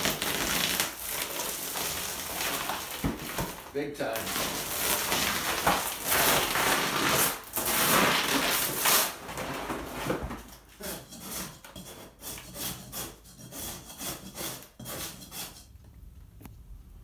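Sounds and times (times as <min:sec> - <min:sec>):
wallpaper tearing: 0:00.0 - 0:15.7
hand scraper rasping on paper: 0:04.2 - 0:09.2, 0:10.7 - 0:15.7.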